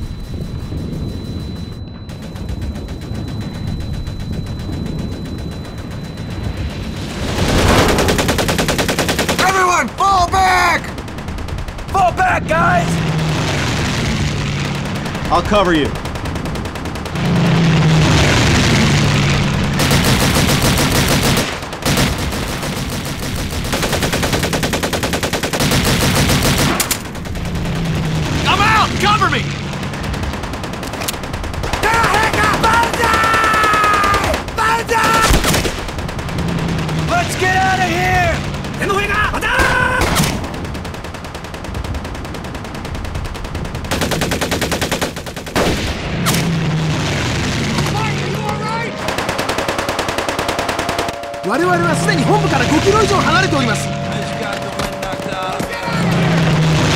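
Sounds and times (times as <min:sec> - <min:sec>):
automatic machine-gun fire: 0:00.0 - 0:56.9
low droning rumble: 0:10.9 - 0:24.1, 0:25.6 - 0:31.9, 0:35.3 - 0:44.2, 0:45.6 - 0:56.9
automatic gunfire rattle: 0:29.6 - 0:37.1, 0:40.1 - 0:45.6.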